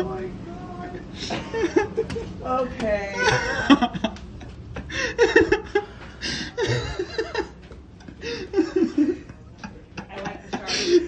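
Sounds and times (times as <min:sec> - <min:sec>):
people laughing: 0:03.2 - 0:11.0.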